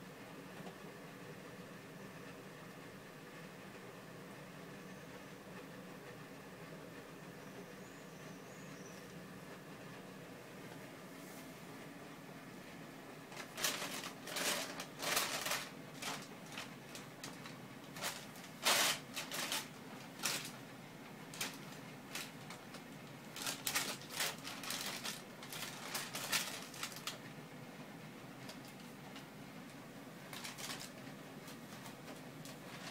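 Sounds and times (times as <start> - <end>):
plastic bag crinkling: 13.3 - 20.7, 21.3 - 27.3, 30.2 - 32.9.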